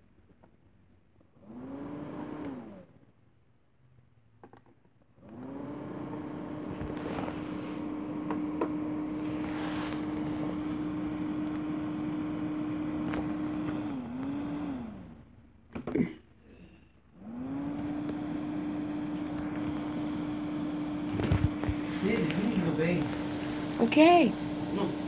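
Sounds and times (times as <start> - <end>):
small electric fan motor humming: 1.4 - 2.9, 5.2 - 15.3, 17.1 - 25.0.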